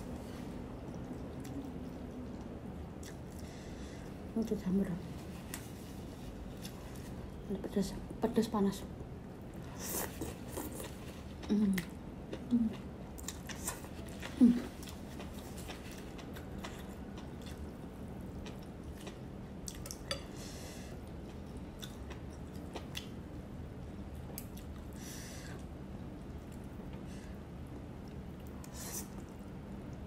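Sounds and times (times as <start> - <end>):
chewing with wet mouth clicks: 0.8 - 3.5, 9.6 - 20.3, 21.0 - 23.3, 24.3 - 24.9.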